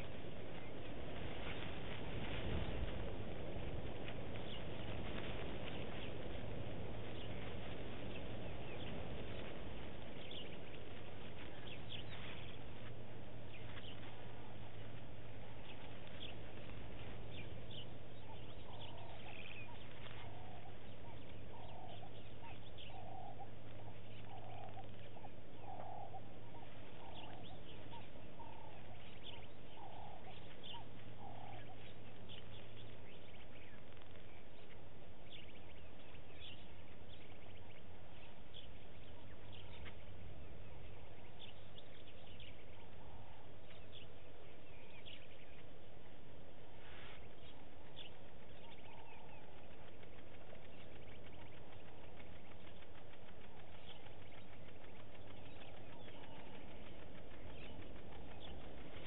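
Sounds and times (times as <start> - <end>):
low hum: 0.0 - 59.0
short low bird calls: 0.0 - 59.0.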